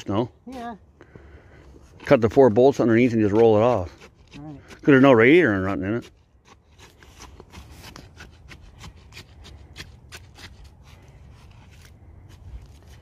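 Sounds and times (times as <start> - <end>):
stick scraping wet concrete: 1.6 - 13.0.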